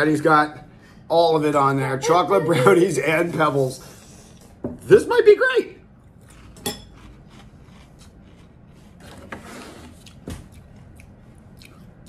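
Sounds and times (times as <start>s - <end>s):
chewing crunchy cereal: 6.1s - 9.1s.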